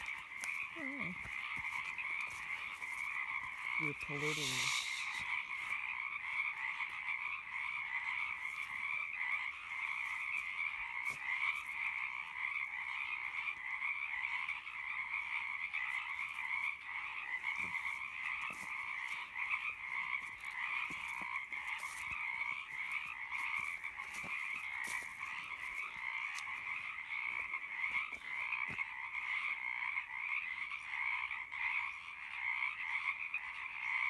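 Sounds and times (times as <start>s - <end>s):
chorus of frogs calling: 0.0s - 34.0s.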